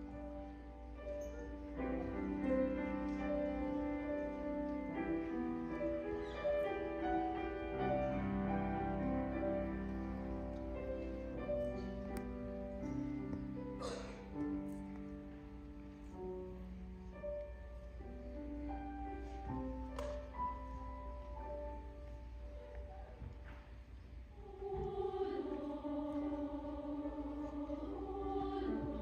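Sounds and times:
grand piano accompaniment: 0.0 - 29.0
mixed choir singing: 24.3 - 29.0.

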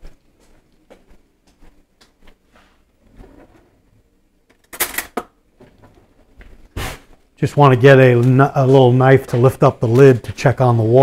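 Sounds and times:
drawer sliding open: 3.0 - 3.8.

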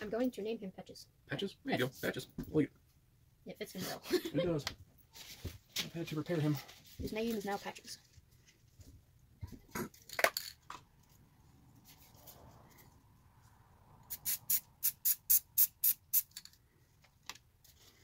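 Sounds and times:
spray paint can hissing bursts: 14.0 - 16.4.

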